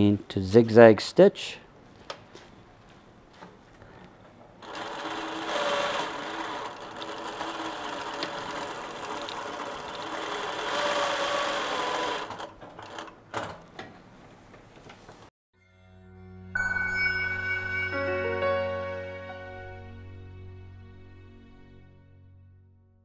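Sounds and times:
sewing machine stitching: 4.6s - 13.2s.

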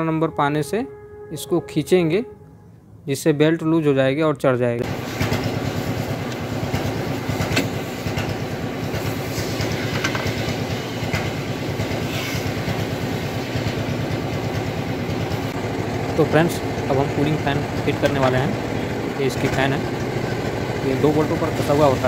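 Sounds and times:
engine idling with rhythmic clatter: 4.8s - 22.0s.

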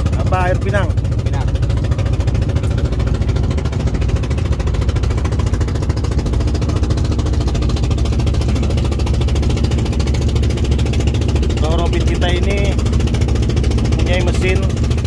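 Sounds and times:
boat engine running steadily: 0.0s - 15.0s.

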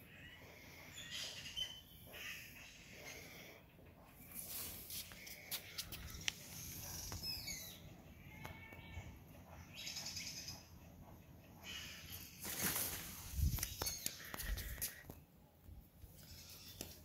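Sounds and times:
birds chirping: 0.0s - 15.3s, 16.1s - 17.0s
rustle: 12.3s - 15.0s.

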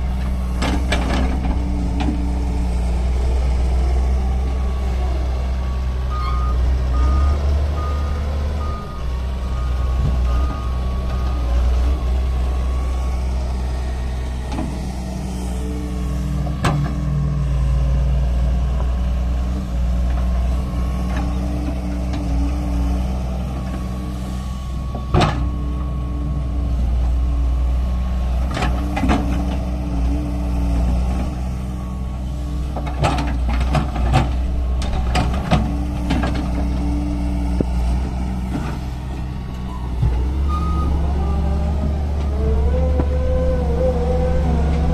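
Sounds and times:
excavator diesel engine running: 0.0s - 44.9s.

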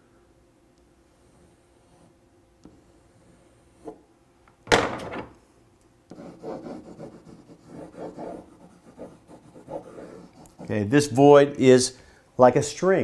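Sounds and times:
marker rubbing on whiteboard: 6.1s - 11.0s.

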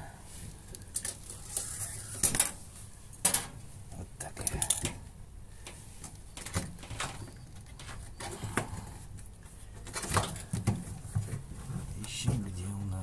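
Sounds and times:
hands rustling and scraping washer drum: 5.6s - 12.9s.

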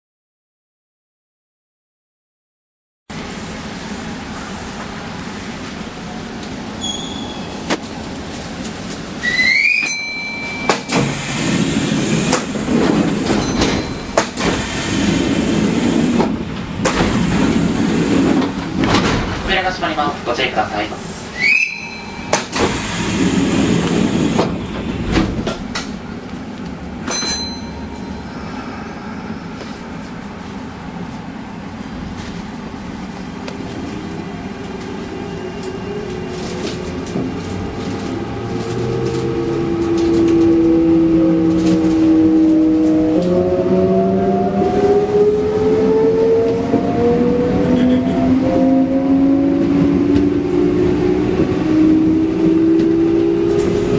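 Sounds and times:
train doors clunking: 6.2s - 28.1s.

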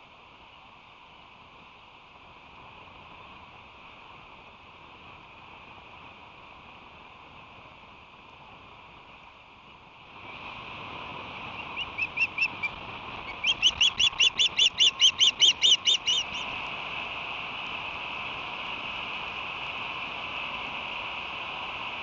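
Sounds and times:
steady hiss: 0.0s - 22.0s
osprey chirping: 11.5s - 16.4s.

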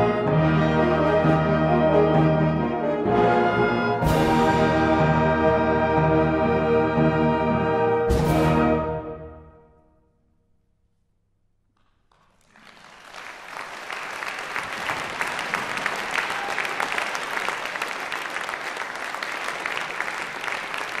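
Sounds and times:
audience applause: 12.1s - 21.0s.

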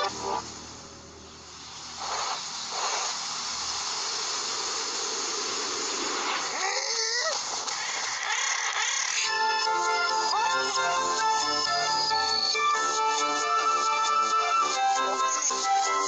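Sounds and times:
cartoon rushing hiss: 0.0s - 0.9s, 1.5s - 16.0s
wavering cartoon squeal: 6.5s - 12.8s.

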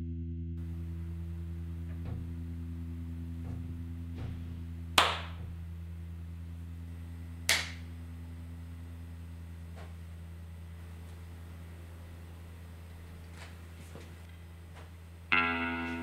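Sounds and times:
steady low hum: 0.0s - 16.0s
sharp hand claps: 5.0s - 5.5s, 7.5s - 7.9s.

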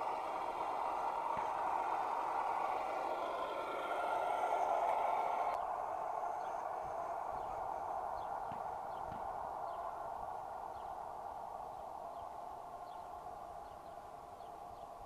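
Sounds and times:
electric motor and gearbox whining: 0.0s - 7.6s.

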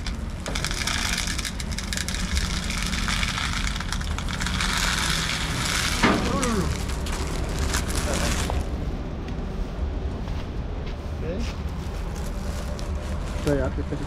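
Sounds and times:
corn kernels pouring: 0.0s - 8.7s
plastic bag crinkling: 0.0s - 8.8s, 11.9s - 13.6s.

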